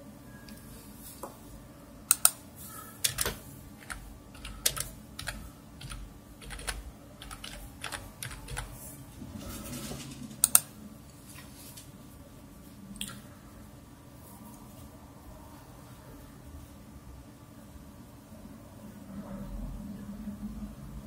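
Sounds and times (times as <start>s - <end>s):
typing on computer keyboard: 3.0s - 8.8s.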